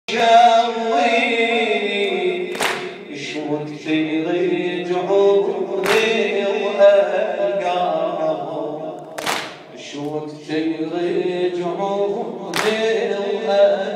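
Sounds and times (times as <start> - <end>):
man chanting a lament: 0.1 - 13.9
hands slapping bare chests: 2.5 - 2.9, 5.8 - 6.1, 9.2 - 9.6, 12.5 - 12.8.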